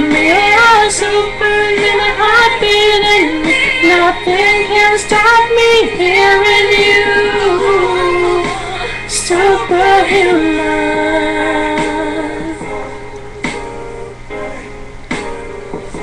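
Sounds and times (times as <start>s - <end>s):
high voice singing pop song: 0.0s - 13.7s.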